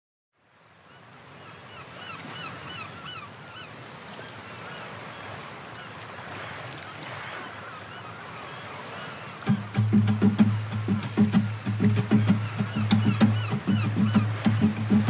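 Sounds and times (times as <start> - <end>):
short bird calls: 7.3 - 15.0
rushing outdoor noise: 9.4 - 15.0.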